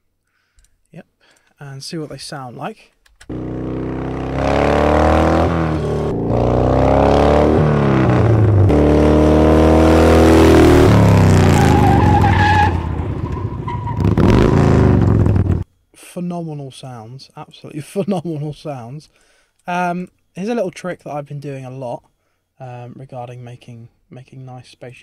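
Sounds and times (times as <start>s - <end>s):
motorcycle engine passing: 3.3s - 11.8s, 12.7s - 15.6s.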